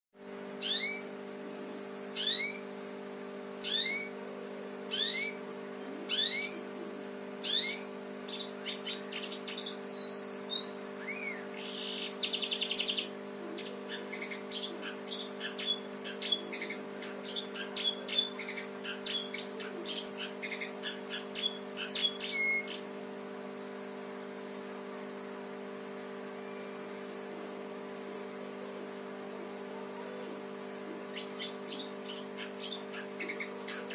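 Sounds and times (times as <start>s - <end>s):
steady low hum: 0.2s - 33.9s
canary singing: 0.6s - 1.2s, 2.1s - 2.7s, 3.5s - 4.2s, 4.9s - 23.2s, 29.4s - 33.9s.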